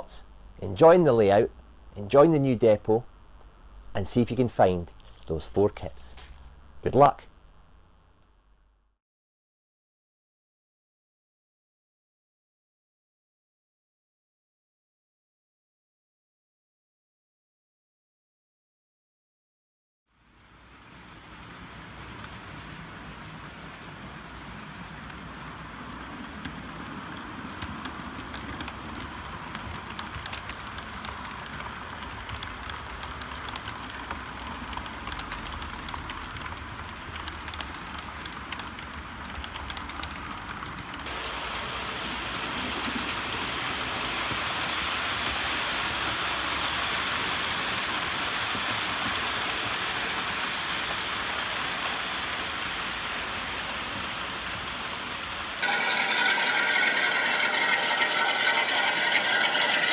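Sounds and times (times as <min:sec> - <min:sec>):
model train wheels and motors hissing: 0:02.1 - 0:07.2, 0:20.2 - 0:59.9
wheels clicking over rail joints: 0:21.1 - 0:59.9.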